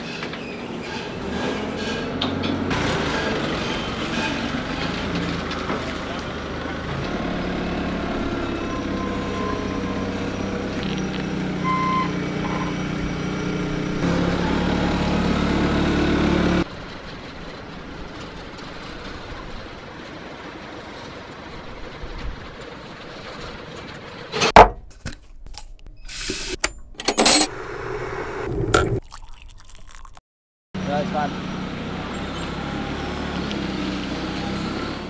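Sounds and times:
outdoor background noise: 0.0 - 30.1, 30.8 - 35.0
vehicle engine running: 2.7 - 19.9, 30.8 - 35.0.

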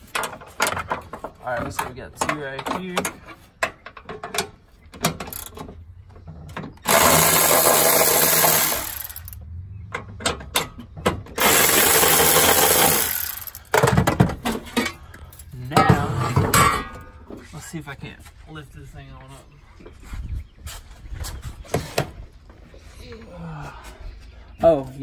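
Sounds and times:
cordless electric ratchet running: 6.9 - 9.4, 11.4 - 13.7.

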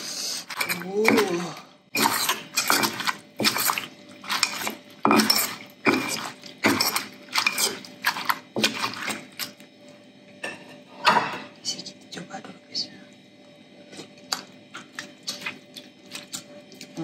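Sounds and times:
metal spoon turning ingredients: 0.4 - 9.6
stone pestle pounding in mortar: 4.4 - 7.8.

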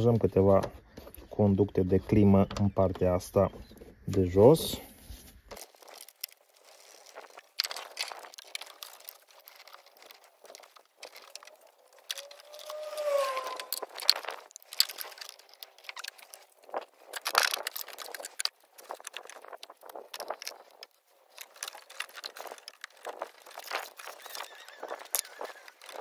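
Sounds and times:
short squeak: 12.2 - 14.0.

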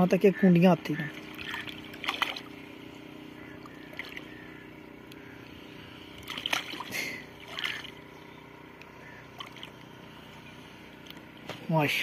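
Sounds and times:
water lapping: 0.2 - 8.2, 8.9 - 11.4
fish splashing in water: 1.1 - 8.1, 9.2 - 10.0.

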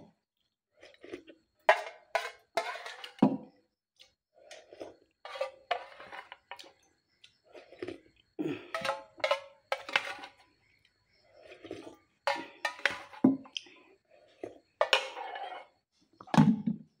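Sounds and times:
spoon scraping a metal pot: 1.6 - 3.5, 4.5 - 6.8, 8.6 - 13.6, 14.2 - 15.8
pot set down: 8.7 - 10.4, 12.3 - 13.5.

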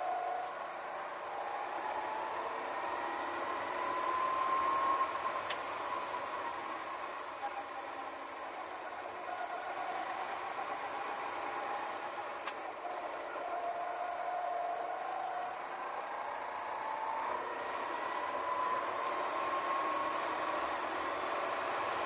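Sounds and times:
go-kart engine accelerating: 0.0 - 22.0
wind and tyre noise: 0.0 - 22.0.

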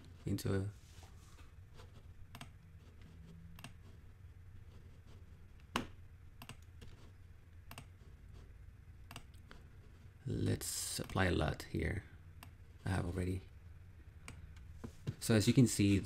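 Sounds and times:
faint low hum: 0.0 - 16.0
computer mouse clicks: 2.3 - 2.6, 3.6 - 3.8, 5.6 - 6.7, 7.6 - 8.0, 9.0 - 9.5.

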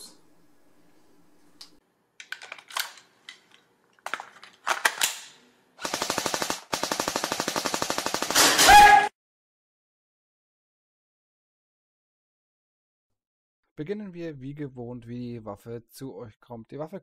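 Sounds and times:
gun clicks: 2.2 - 6.1
automatic gunfire: 5.8 - 9.1.

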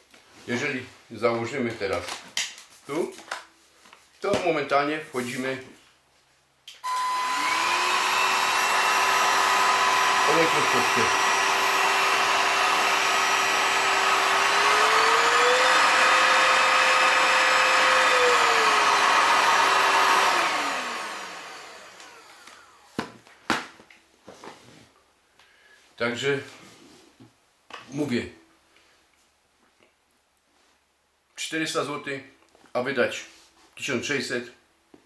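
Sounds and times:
brush roller turning: 6.8 - 22.8
vacuum cleaner motor whine: 6.8 - 23.0.

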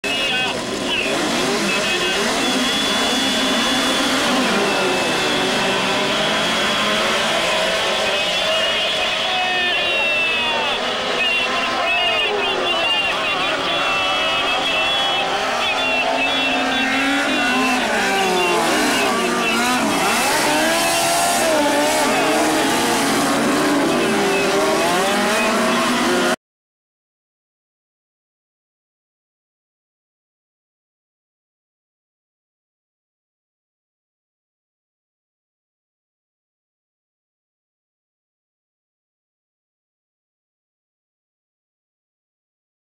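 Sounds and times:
race car engines: 0.0 - 26.4.

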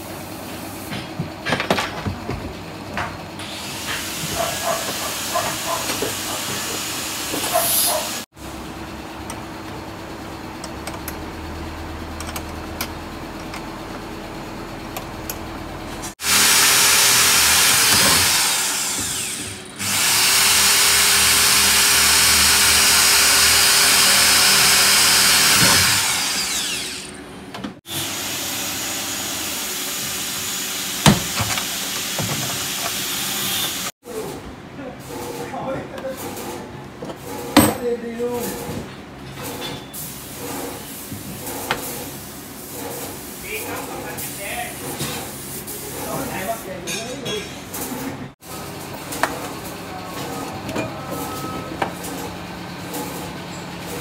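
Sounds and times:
power tool humming and hissing: 16.2 - 27.2, 27.9 - 33.9.

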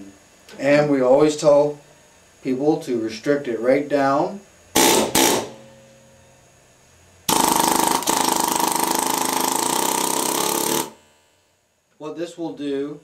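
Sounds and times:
pneumatic air hammer hammering: 4.8 - 6.0, 7.3 - 11.0.

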